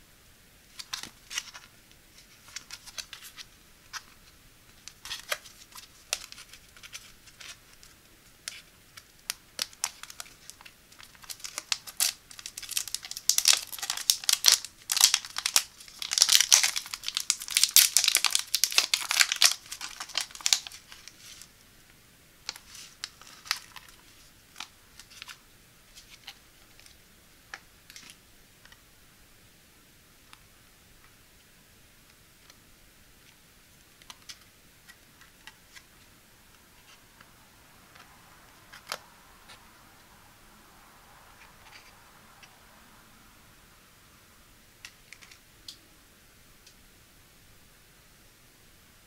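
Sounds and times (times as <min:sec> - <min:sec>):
plastic tray crinkles and clicks: 0:04.8 - 0:21.1
foil sachet crinkling and tearing: 0:09.6 - 0:21.5.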